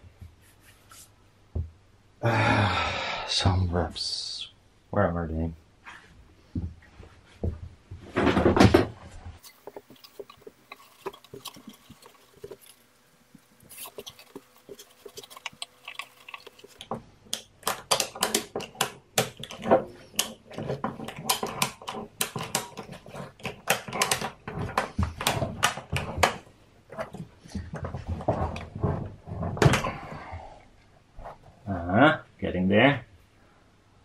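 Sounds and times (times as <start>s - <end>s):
strap scraping: 9.4s - 16.9s.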